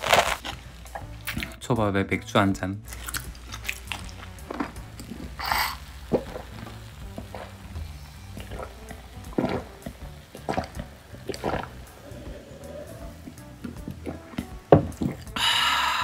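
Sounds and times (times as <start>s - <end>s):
soft background music: 0.0s - 16.0s
person slurping beer: 2.9s - 16.0s
person swallowing: 8.4s - 16.0s.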